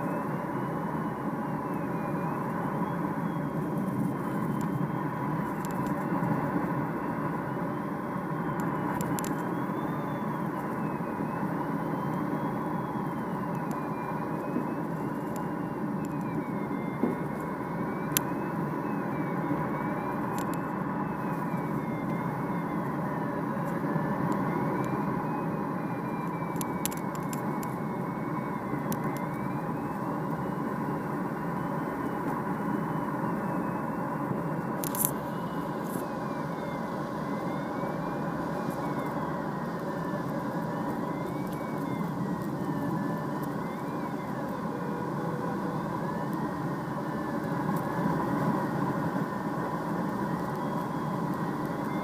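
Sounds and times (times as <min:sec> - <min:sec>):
faint high electronic tone: 0:00.0 - 0:52.0
tow plane engine drone: 0:00.0 - 0:52.0.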